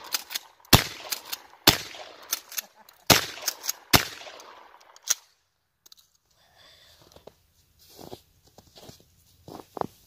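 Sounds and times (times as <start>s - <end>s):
shotgun blasts: 0.0s - 2.4s, 3.1s - 5.0s
sharp clicks: 0.0s - 6.2s.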